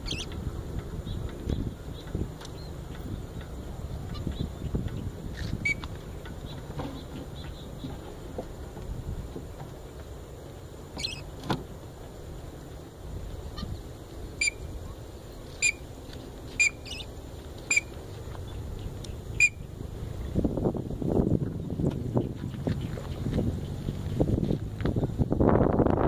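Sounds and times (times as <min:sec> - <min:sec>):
birds calling short sharp calls: 0:00.0 - 0:00.4, 0:11.0 - 0:11.3, 0:13.5 - 0:15.9, 0:16.5 - 0:19.7
wind rumble on microphone: 0:00.0 - 0:26.0.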